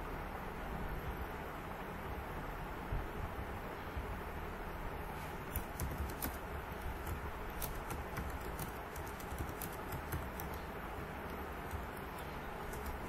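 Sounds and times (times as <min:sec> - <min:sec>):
steady background hiss: 0:00.0 - 0:13.0
keyboard key clicks: 0:05.5 - 0:10.6.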